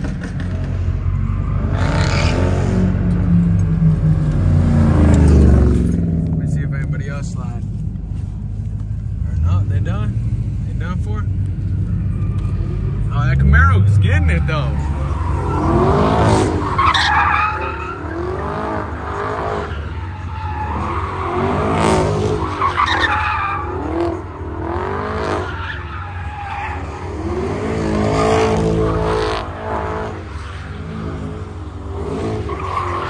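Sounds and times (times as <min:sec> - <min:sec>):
car engine revving: 0:00.0 - 0:33.0
tyres squealing: 0:12.1 - 0:27.4.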